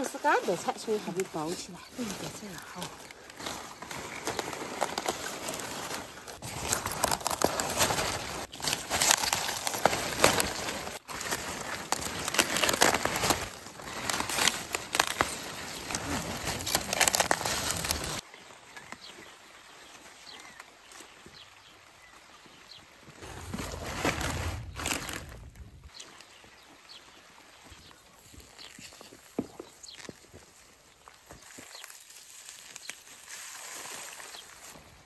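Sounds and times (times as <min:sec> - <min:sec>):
cabbage leaves rustling and crackling: 0:00.0 - 0:35.0.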